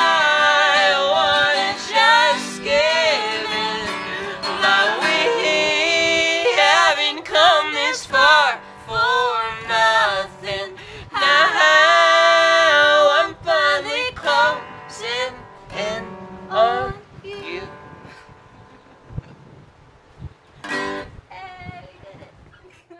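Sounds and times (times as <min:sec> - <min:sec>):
man and woman singing duet: 0:00.0 - 0:17.9.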